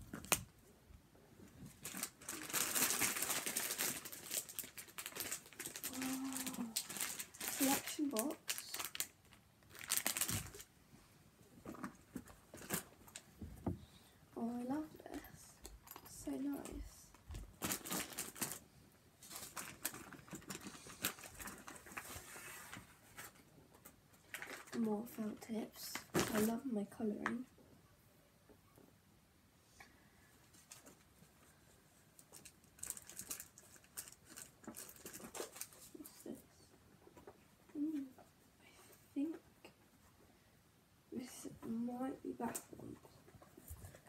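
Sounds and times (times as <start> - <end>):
plastic packaging rustling: 0.0 - 0.5, 1.5 - 10.7, 11.6 - 13.3, 16.0 - 18.6, 19.2 - 24.9, 25.9 - 26.6, 30.4 - 36.3.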